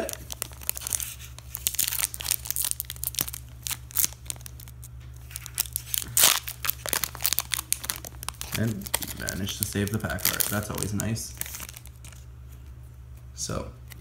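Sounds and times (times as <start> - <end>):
foil wrapper crinkling: 0.0 - 12.3
foil wrapper ripping: 0.0 - 12.3.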